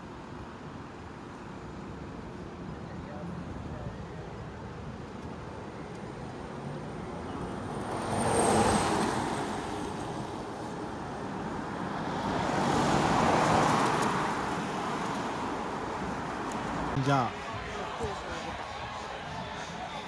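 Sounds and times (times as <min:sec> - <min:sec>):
cars passing on wet road: 0:06.9 - 0:19.6.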